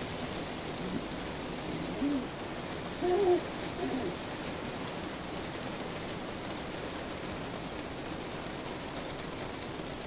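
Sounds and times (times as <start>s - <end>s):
steady rain hiss: 0.0s - 10.0s
dove cooing: 0.8s - 2.4s, 3.0s - 4.2s.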